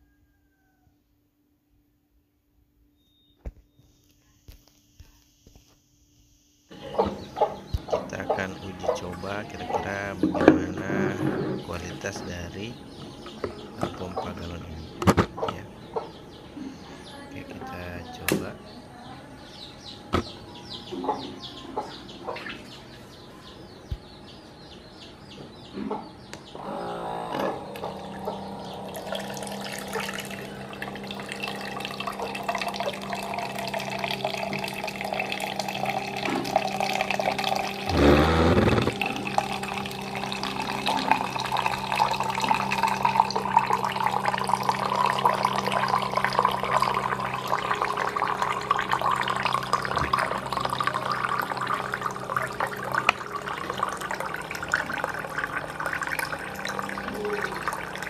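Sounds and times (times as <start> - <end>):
electric water pump humming: 6.7 - 20.9, 26.5 - 58.0.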